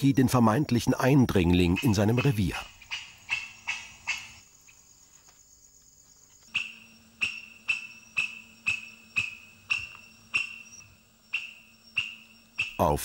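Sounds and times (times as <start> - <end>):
lemur calls: 1.4 - 4.8, 6.5 - 13.0.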